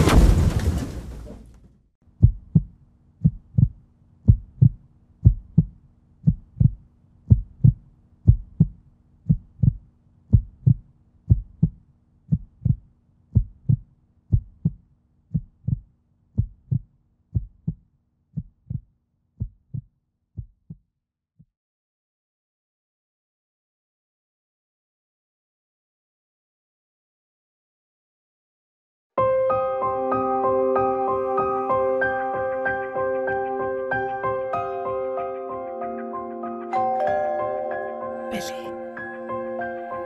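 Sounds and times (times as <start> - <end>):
heartbeat thumps: 2.1 - 17.8, 18.4 - 20.8.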